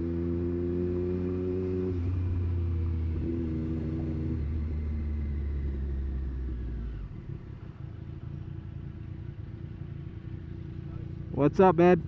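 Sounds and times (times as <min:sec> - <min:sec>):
wind and road rumble: 0:00.0 - 0:12.0
motorcycle engine running: 0:02.4 - 0:12.0.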